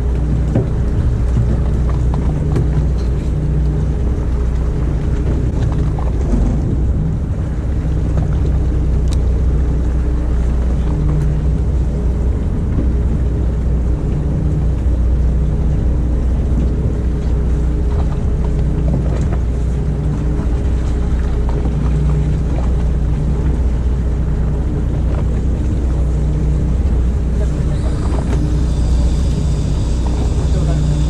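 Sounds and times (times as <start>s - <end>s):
boat engine droning: 0.0s - 31.0s.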